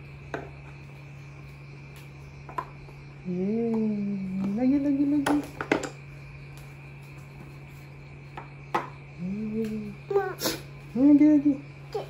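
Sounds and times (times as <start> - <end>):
steady low hum: 0.0 - 12.0
person humming: 9.2 - 10.6.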